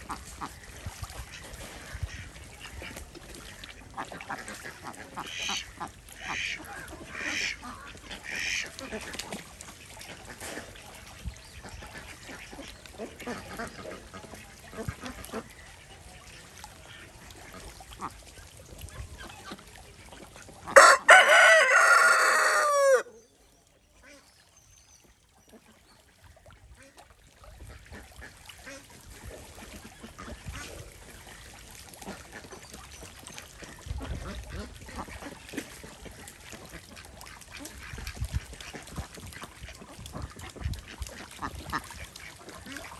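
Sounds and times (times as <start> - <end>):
ducks splashing in water: 0.0 - 42.9
rooster crowing: 20.8 - 23.1.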